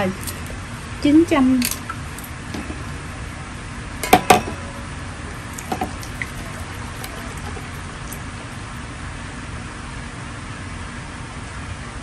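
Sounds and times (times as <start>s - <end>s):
kitchenware clinking: 0.0s - 0.6s, 1.6s - 3.2s, 4.0s - 8.6s.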